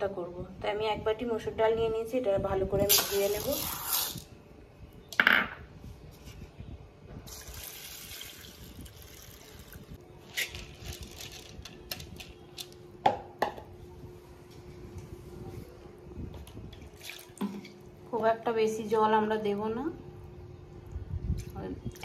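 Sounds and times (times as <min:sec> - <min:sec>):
water splashing and pouring: 0:07.3 - 0:09.8, 0:16.9 - 0:17.7.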